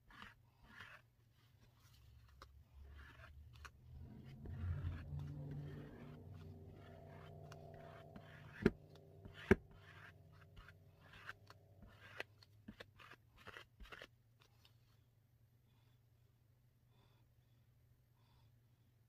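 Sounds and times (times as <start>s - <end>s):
applicator scraping epoxy on wood: 0.0s - 14.1s
steady low hum: 3.2s - 12.0s.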